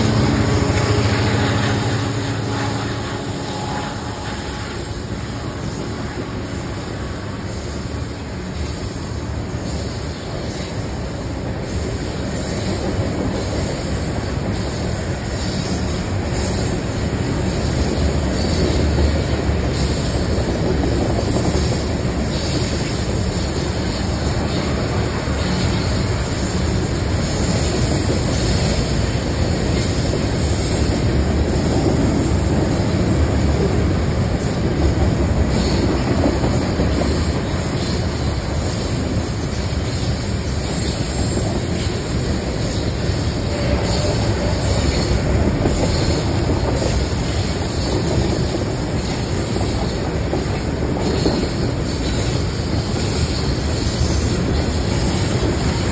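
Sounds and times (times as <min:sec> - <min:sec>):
steel wheels rolling on rails: 0:00.0 - 0:55.9.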